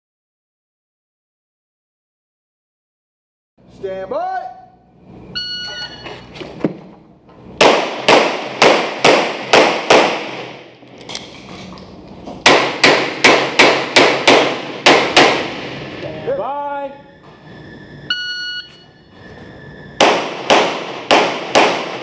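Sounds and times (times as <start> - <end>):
pistol shots echoing indoors: 7.6 - 10.8, 12.4 - 15.9, 20.0 - 22.0.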